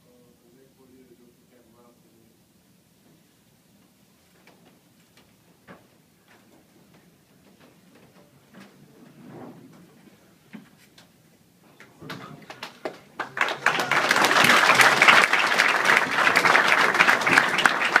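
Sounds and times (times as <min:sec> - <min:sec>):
crowd murmur: 0:11.9 - 0:18.0
crowd applause: 0:12.4 - 0:18.0.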